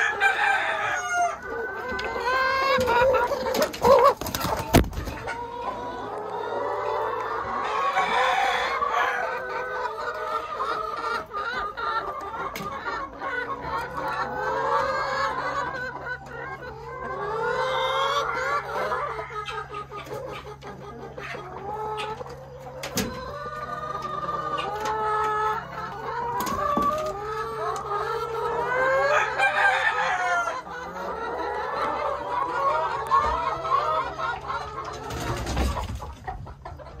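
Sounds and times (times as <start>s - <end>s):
hens clucking and squawking: 0.0s - 37.0s.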